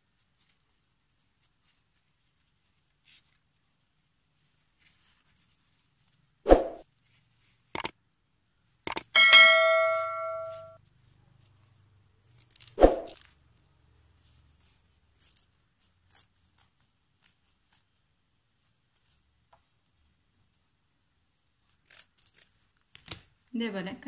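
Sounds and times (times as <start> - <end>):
bell-like notification chime: 9.2 - 10.8.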